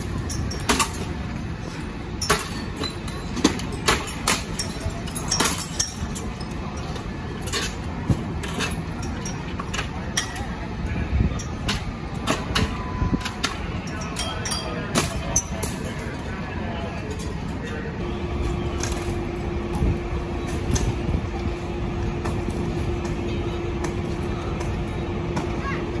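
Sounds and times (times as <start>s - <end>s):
sharp knocks and clinks: 0.0s - 1.3s, 2.2s - 10.5s, 11.3s - 16.1s
fire engine idling rumble: 0.0s - 26.0s.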